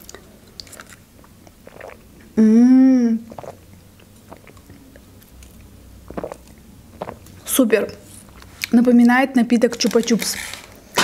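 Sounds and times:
mouth and swallowing sounds: 0.0 - 7.5
person humming: 2.4 - 3.3
sipping through a straw: 3.3 - 3.6.

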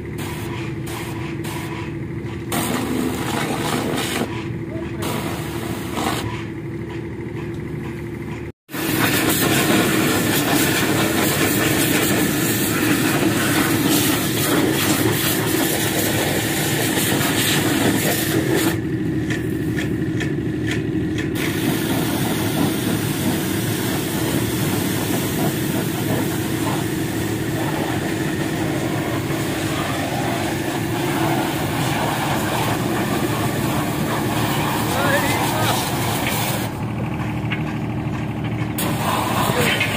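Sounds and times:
pressure washer jet hissing on metal: 0.0 - 1.8, 2.5 - 4.3, 5.0 - 6.3, 8.7 - 18.8, 21.4 - 36.8, 38.8 - 39.9
pressure washer motor humming: 2.4 - 6.8, 8.7 - 39.9.

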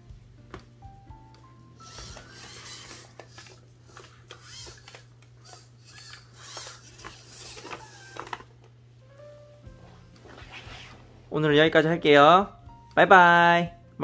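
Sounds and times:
robot servo whirring: 1.8 - 8.5.

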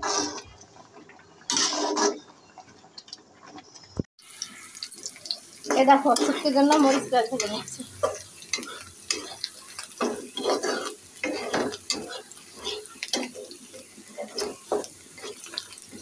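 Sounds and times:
metal spatula scraping a wok: 0.0 - 0.5, 1.5 - 2.3, 5.6 - 16.0
oil sizzling: 0.0 - 16.0.

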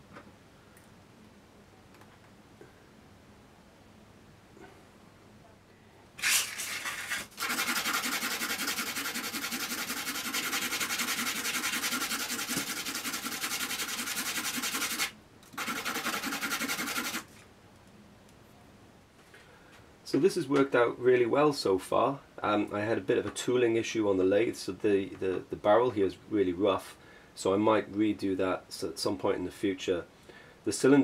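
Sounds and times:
metal rubbed on sandpaper: 6.2 - 17.3.

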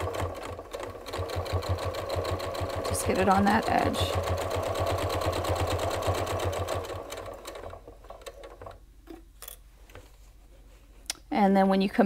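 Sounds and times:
sewing machine stitching: 0.0 - 8.8.

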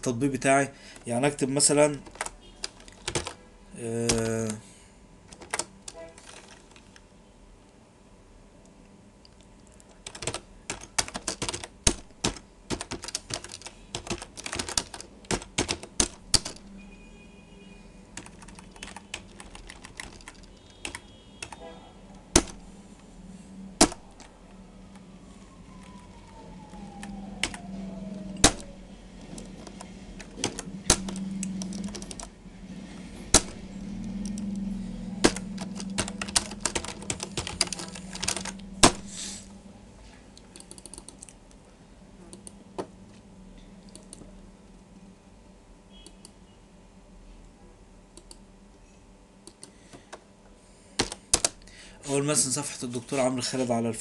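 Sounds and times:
low steady hum: 0.0 - 54.0
computer keyboard typing: 1.9 - 3.4, 4.0 - 4.6, 5.3 - 7.0, 9.2 - 16.8, 18.2 - 21.6, 22.3 - 22.7, 23.8 - 25.1, 25.7 - 32.3, 33.3 - 39.1, 40.4 - 41.4, 43.8 - 44.3, 51.0 - 51.7.

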